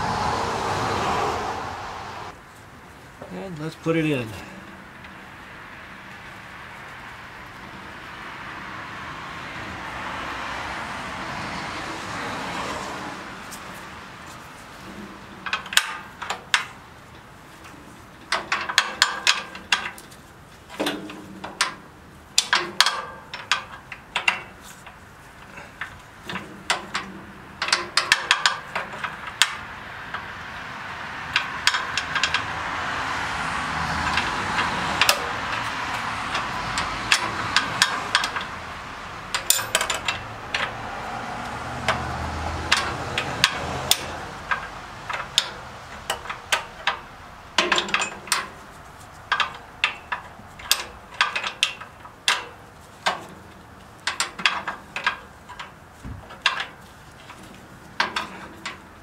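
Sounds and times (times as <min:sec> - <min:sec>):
background noise: 0:00.0 - 0:59.0.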